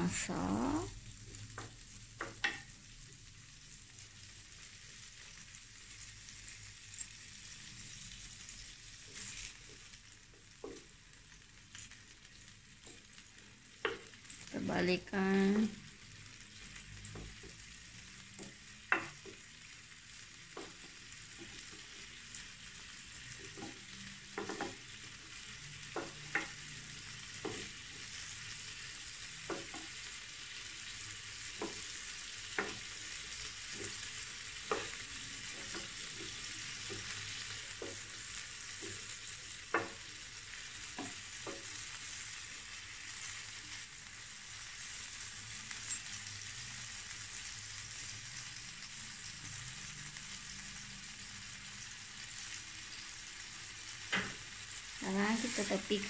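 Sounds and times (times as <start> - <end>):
prawns sizzling in hot oil: 0.0 - 56.0.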